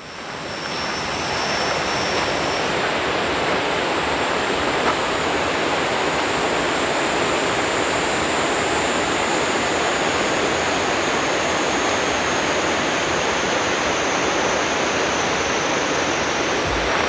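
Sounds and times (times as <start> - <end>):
river water rushing: 0.2 - 17.0.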